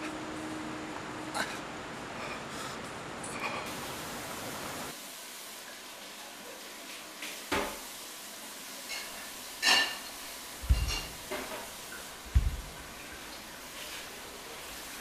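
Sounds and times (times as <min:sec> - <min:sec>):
background hiss: 0:03.7 - 0:15.0.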